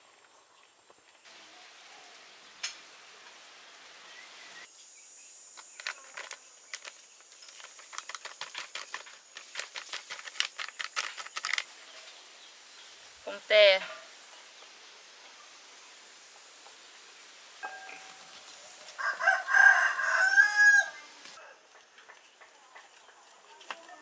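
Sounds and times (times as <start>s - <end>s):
crackly clicks: 5.6s - 11.7s
plastic packet crinkling: 5.7s - 11.7s.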